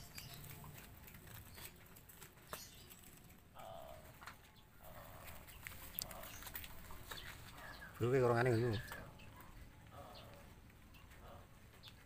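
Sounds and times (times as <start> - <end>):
soft rustles: 4.1 - 9.7.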